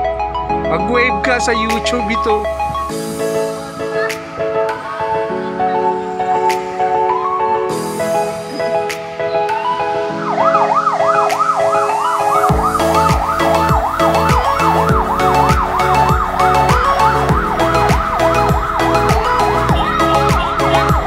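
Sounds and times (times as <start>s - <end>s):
dance beat music: 0.5s - 21.0s
yelp siren: 8.6s - 21.0s.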